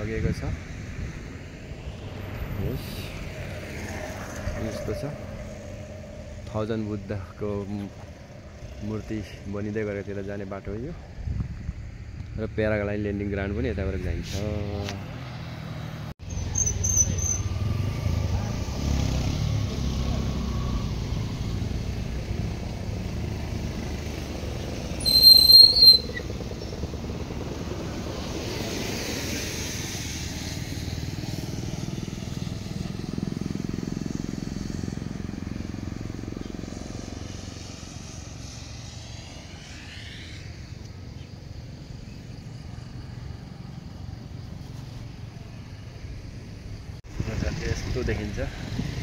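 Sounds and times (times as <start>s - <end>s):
wind noise: 0.0s - 6.0s, 10.6s - 13.2s, 45.4s - 49.0s
motorcycle engine: 30.7s - 40.5s.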